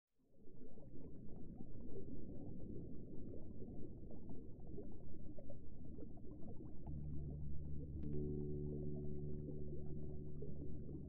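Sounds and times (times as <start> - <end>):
water bubbling and gurgling: 0.2 - 11.0
low steady drone: 6.8 - 11.0.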